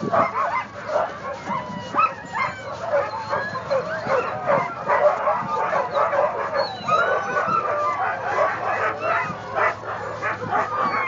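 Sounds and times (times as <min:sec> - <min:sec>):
dogs barking and howling: 0:00.0 - 0:11.0.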